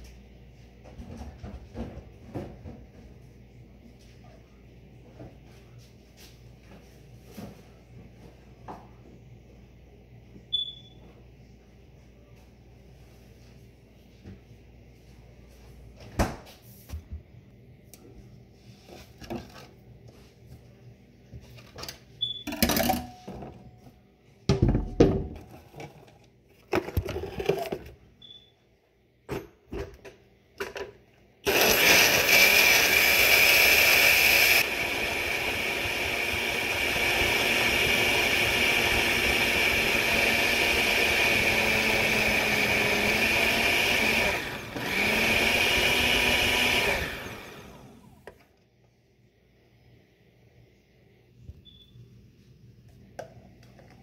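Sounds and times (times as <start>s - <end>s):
countertop blender running: 31.4s - 48.4s.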